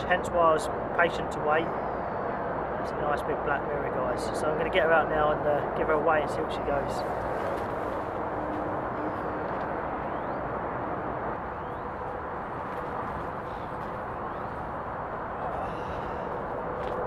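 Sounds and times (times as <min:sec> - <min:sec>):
distant motorway traffic rumble: 0:00.0 - 0:17.0
faint bird chirps: 0:10.0 - 0:10.5.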